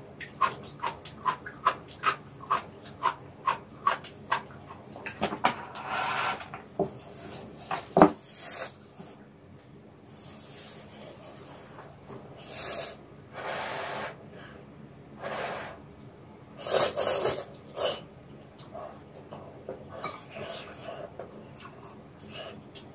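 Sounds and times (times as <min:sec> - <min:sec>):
person slurping noodles: 0:16.6 - 0:18.0.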